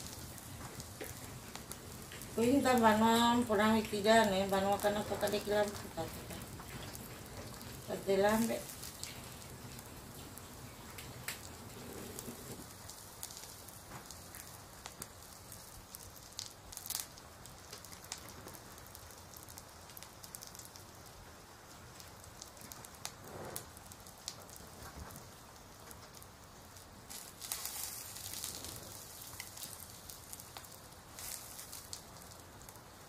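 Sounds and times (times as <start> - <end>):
faint steady hiss: 0.0 - 33.0
dry corn husks rustling: 27.1 - 32.3.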